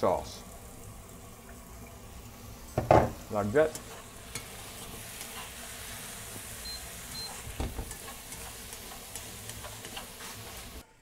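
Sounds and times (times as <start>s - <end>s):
tofu sizzling in a frying pan: 0.0s - 10.9s
spatula scraping a pan: 3.6s - 10.8s.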